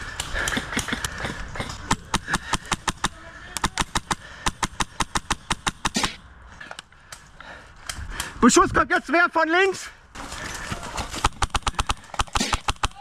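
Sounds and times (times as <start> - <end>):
airsoft rifle rapid shots: 0.4 - 6.2, 11.2 - 13.0.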